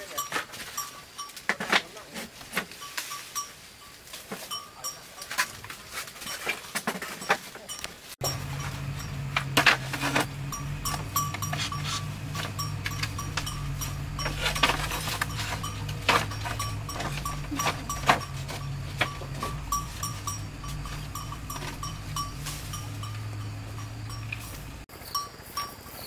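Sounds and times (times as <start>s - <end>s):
steady low hum: 8.2s - 24.9s.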